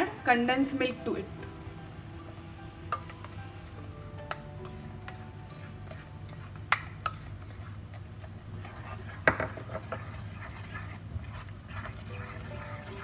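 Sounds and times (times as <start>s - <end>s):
spatula scraping and stirring: 2.2s - 13.0s
spatula knocking on pan: 9.2s - 10.1s.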